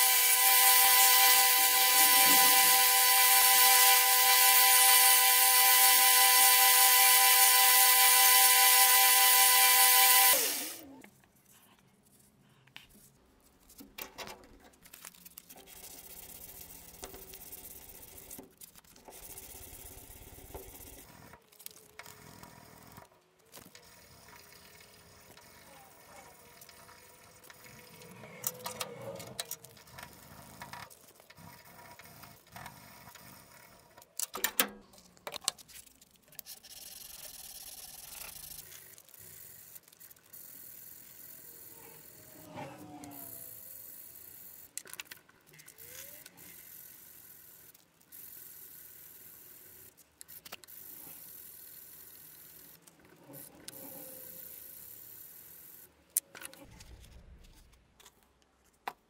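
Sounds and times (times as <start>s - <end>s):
sandpaper scratching wood: 0.0s - 6.3s.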